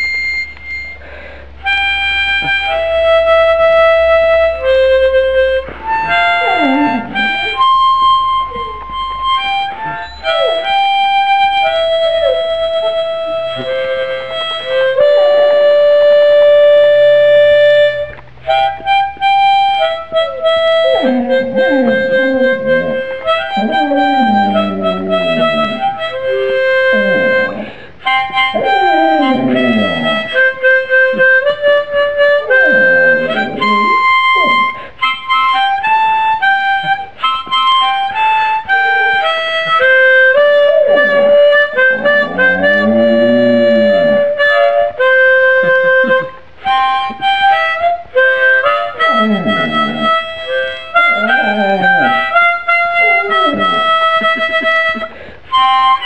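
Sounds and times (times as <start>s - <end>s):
music: 0.0s - 56.0s
dog howling: 6.0s - 7.7s, 9.8s - 11.1s, 20.1s - 31.6s, 32.2s - 34.8s, 38.7s - 44.8s, 49.0s - 54.5s.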